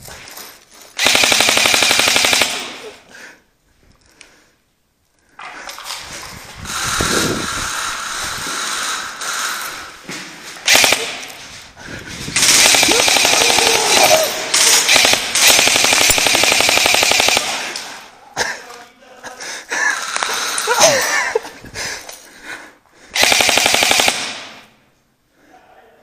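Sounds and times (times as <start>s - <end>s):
airsoft gun automatic fire: 1.0s - 2.8s, 10.6s - 11.4s, 12.4s - 18.0s, 20.0s - 20.6s, 23.2s - 24.7s.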